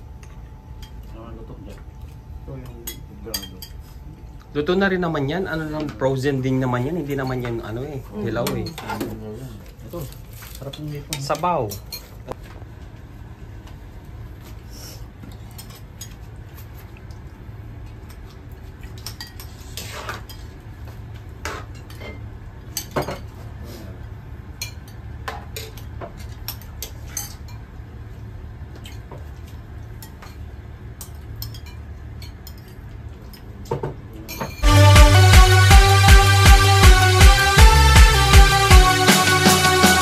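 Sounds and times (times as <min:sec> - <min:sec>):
spoons clinking against dishes: 0:02.7 - 0:03.8, 0:31.0 - 0:34.6.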